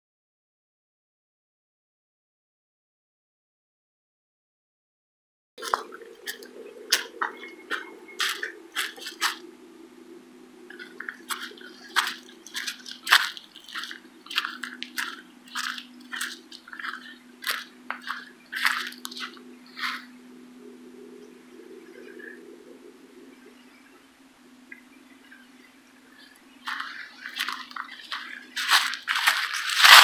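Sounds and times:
footsteps crunching dry leaves: 0:05.6 - 0:09.4, 0:10.7 - 0:20.1, 0:26.6 - 0:30.0.

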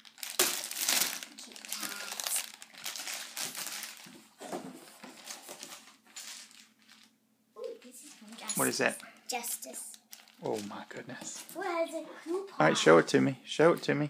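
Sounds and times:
packaging crinkling and rustling: 0:00.0 - 0:07.2, 0:09.8 - 0:10.8.

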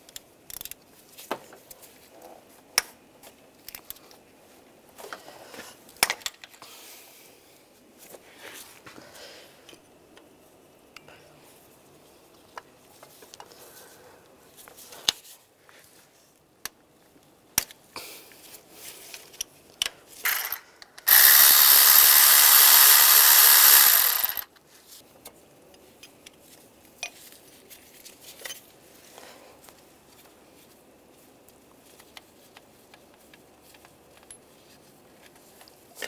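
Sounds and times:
tools clicking and knocking: 0:00.0 - 0:00.8
cordless electric ratchet running: 0:20.2 - 0:24.5.

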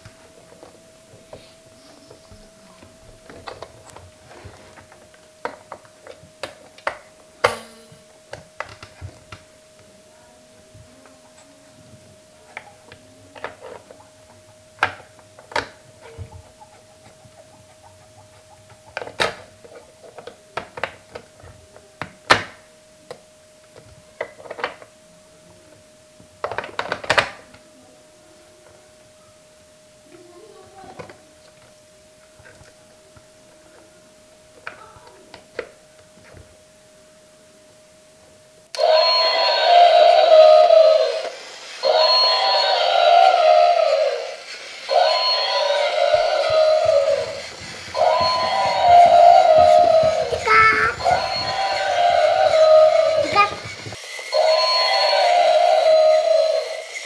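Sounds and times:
faint steady whine: 0:00.0 - 0:57.0
plastic toy clicking and knocking: 0:26.4 - 0:27.4.

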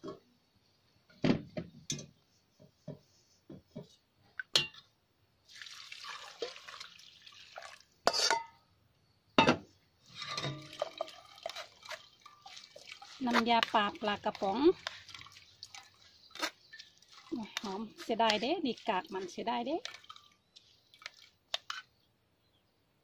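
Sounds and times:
broth splashing into pot: 0:05.5 - 0:07.9, 0:10.2 - 0:21.7.

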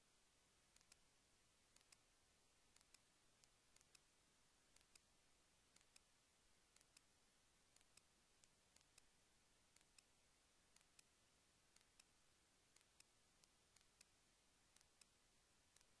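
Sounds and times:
faint sharp clicks: 0:00.7 - 0:01.1, 0:01.7 - 0:02.1, 0:02.7 - 0:04.1, 0:04.7 - 0:05.1, 0:05.7 - 0:06.1, 0:06.7 - 0:07.1, 0:07.7 - 0:16.0.

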